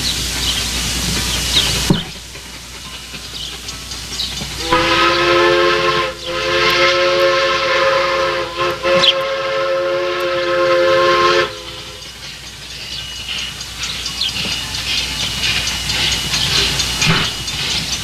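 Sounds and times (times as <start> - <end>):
chime train whistle blast: 4.6 - 12.2.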